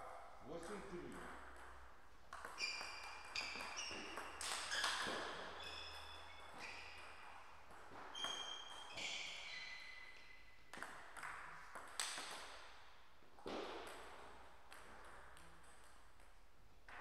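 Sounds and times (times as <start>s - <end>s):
shoe soles squeaking on floor: 2.4s - 10.7s.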